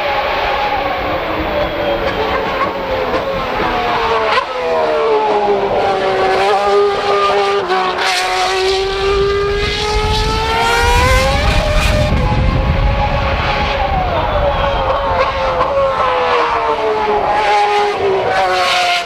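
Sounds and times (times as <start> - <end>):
racing car engine revving: 0.0 - 19.0
deep rumble: 8.8 - 16.2.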